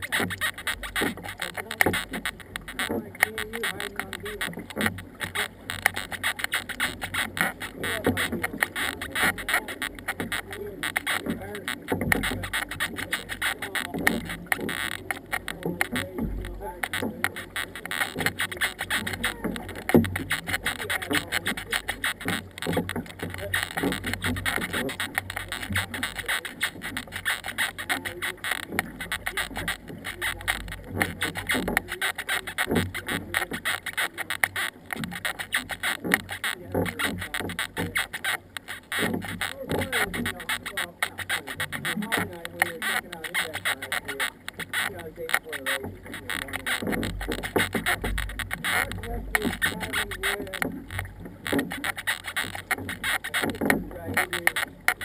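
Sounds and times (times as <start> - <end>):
paddles splashing in water: 0.0 - 55.0
water slapping against hull: 0.0 - 55.0.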